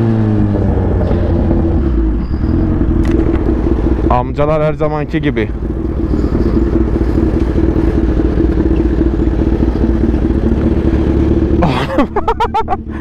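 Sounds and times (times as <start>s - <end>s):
motorcycle engine burbling: 0.0s - 13.0s
sharp pitch-sliding sound: 0.4s - 9.9s.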